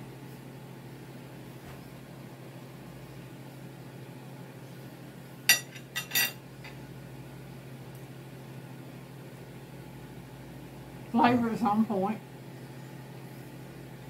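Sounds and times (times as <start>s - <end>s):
steady low hum: 0.0s - 14.0s
cutlery clinking on a plate: 5.5s - 6.4s.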